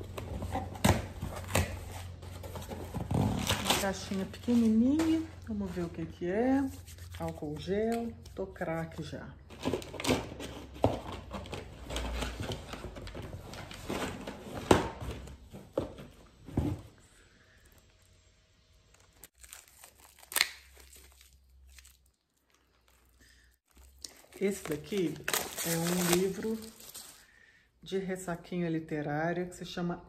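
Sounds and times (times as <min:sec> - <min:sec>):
packaging crinkling and tearing: 0:18.8 - 0:27.2.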